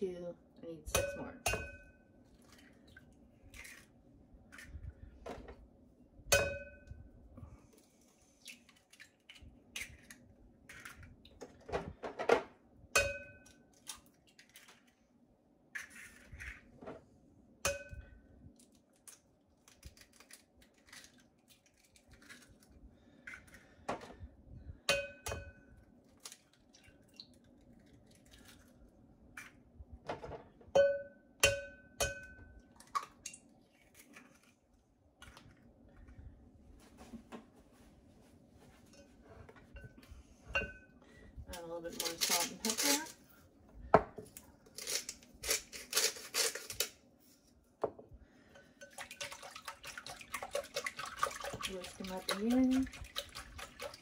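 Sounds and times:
bowl ringing tone: 6.3 - 7.1, 30.8 - 32.6.

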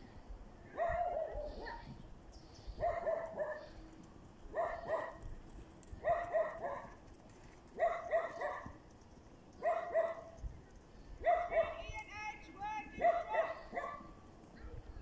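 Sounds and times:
dog barking: 0.8 - 1.9, 2.8 - 3.7, 4.5 - 5.2, 6.0 - 6.9, 7.8 - 8.8, 9.6 - 10.3, 11.2 - 11.8, 13.0 - 14.1.

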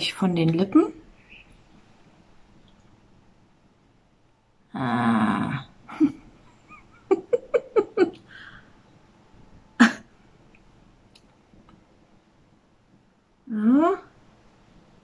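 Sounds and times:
woman growling: 4.7 - 6.2
woman laughing: 5.9 - 8.5.

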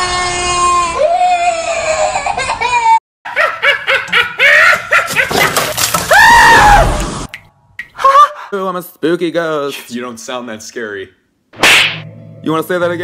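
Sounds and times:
girl laughing: 2.0 - 5.5
loud scream: 6.1 - 7.1.

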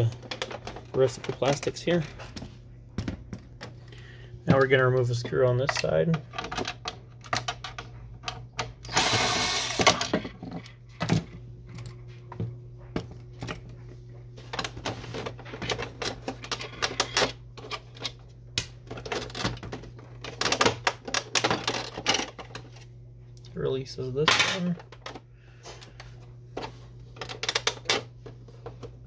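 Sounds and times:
steady low hum: 0.0 - 29.0
cordless drill running: 8.9 - 10.1
plastic clicks and rattles: 27.2 - 28.1.

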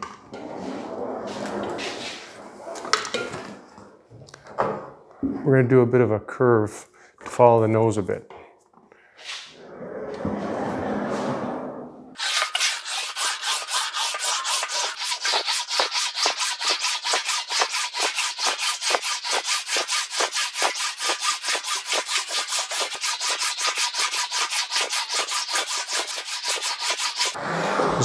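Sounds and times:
english wheel rasping on sheet metal: 12.2 - 27.4.

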